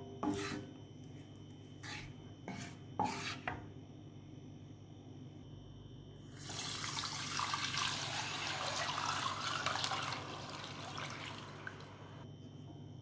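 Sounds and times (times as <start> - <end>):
milk pouring into a pot: 6.3 - 12.2.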